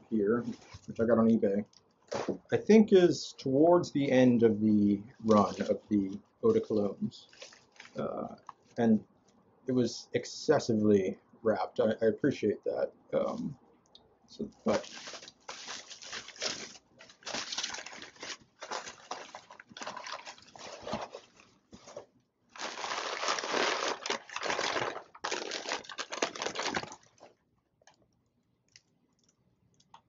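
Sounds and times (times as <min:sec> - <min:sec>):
bubble wrap and paper rustling: 0:05.2 - 0:08.8, 0:14.6 - 0:27.4.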